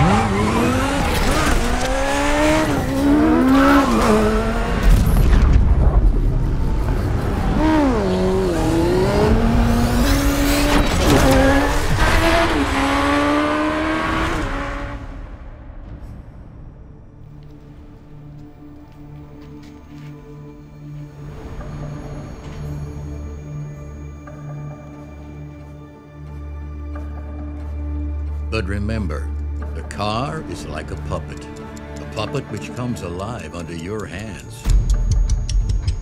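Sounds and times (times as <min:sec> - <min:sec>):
race car engine revving: 0:00.0 - 0:04.9, 0:07.3 - 0:15.4.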